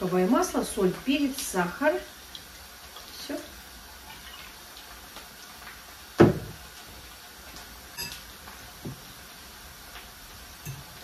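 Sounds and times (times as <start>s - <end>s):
utensils clinking glass bowl: 8.0s - 8.2s, 10.6s - 11.0s.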